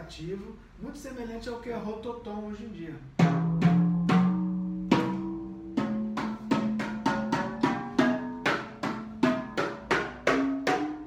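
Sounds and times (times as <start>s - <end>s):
rototoms struck: 3.2s - 11.0s.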